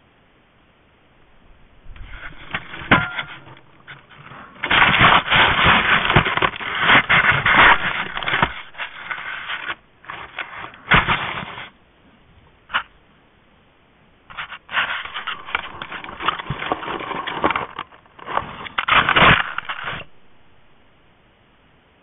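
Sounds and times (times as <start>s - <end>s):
bear scraping camera housing: 1.9s - 11.8s.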